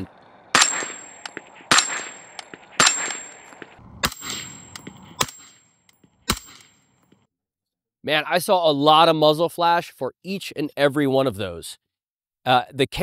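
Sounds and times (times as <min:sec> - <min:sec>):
suppressed rifle gunshots: 0:00.5 - 0:04.5.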